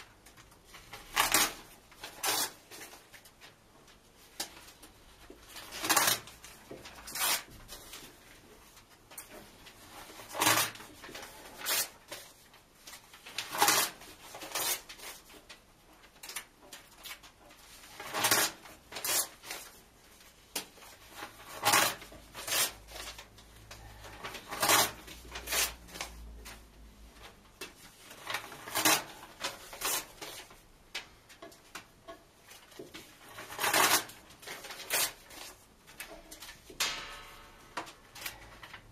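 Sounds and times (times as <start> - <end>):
paper tearing: 0.8 - 3.0, 5.5 - 8.1, 9.9 - 15.3, 16.2 - 19.8, 20.8 - 26.6, 28.0 - 30.6, 33.0 - 36.5.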